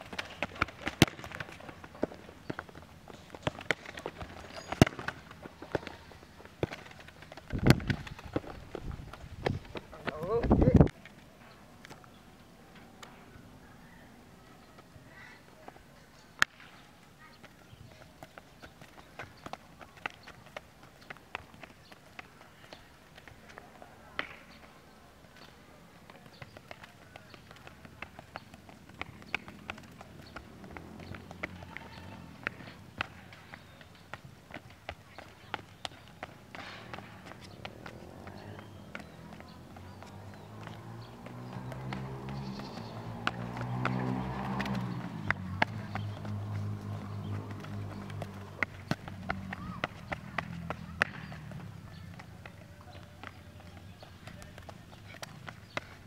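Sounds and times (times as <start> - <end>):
ball kicks: 0.0 - 10.2, 47.0 - 51.6
ball dribbled on concrete: 0.0 - 11.0, 17.4 - 24.5, 26.0 - 56.0
quick footsteps on hard court: 0.0 - 11.2, 17.4 - 56.0.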